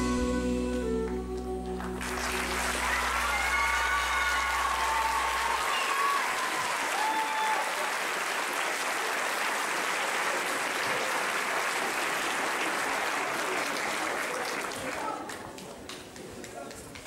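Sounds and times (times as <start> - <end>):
band's held notes: 0.0 - 4.2
audience applauding: 1.0 - 17.0.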